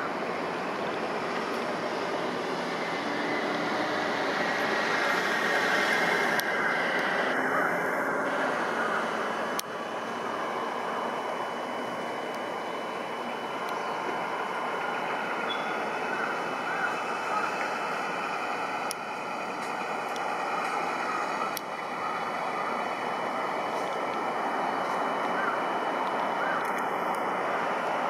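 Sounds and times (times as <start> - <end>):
construction machinery: 0.0 - 28.0
vehicle traffic: 0.0 - 28.0.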